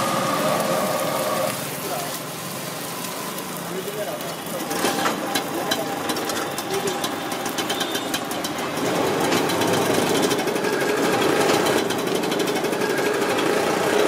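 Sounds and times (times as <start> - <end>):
street noise: 0.0 - 14.0
small engine knocking rattle: 4.6 - 14.0.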